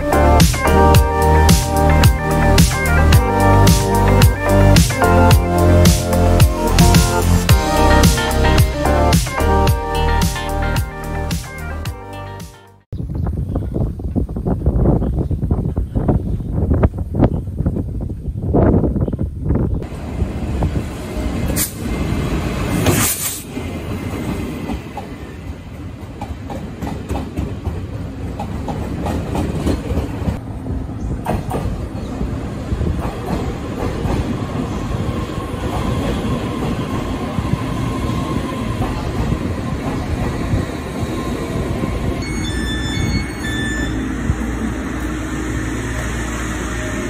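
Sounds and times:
train wheels rumbling on rails: 13.4 - 47.0.

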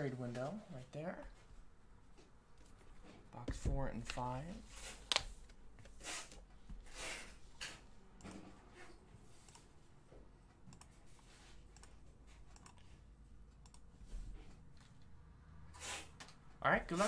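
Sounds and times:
computer mouse clicks: 9.4 - 9.7, 10.7 - 11.0, 11.7 - 12.9, 13.5 - 13.9.

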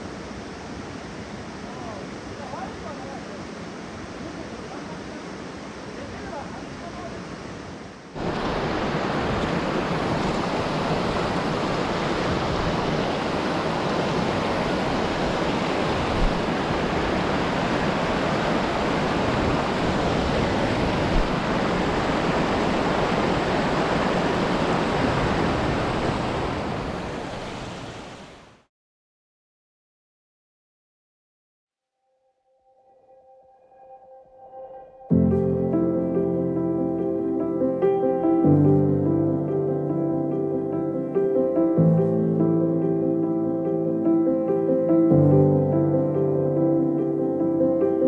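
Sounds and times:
stream water rushing: 0.0 - 28.6.

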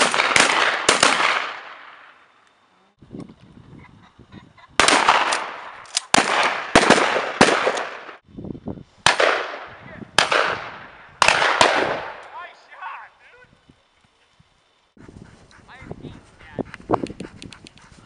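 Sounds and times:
shotgun shots with echo: 0.0 - 2.0, 4.8 - 8.2, 9.1 - 12.3.

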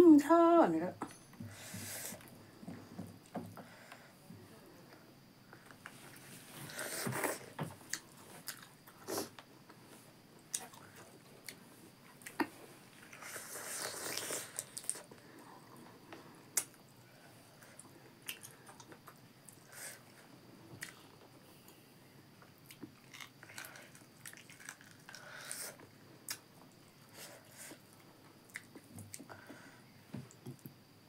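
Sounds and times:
wet chewing and mouth clicks: 22.6 - 25.6.

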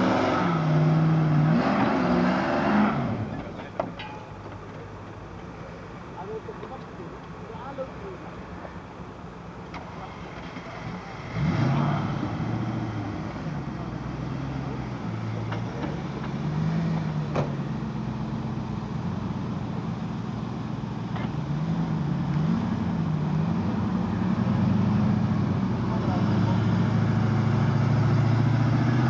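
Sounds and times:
engine revving under load: 0.0 - 3.7, 9.7 - 29.0.

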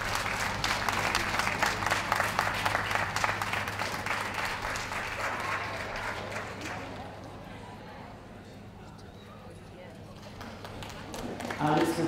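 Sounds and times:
audience applauding: 0.0 - 7.2, 10.3 - 12.0.

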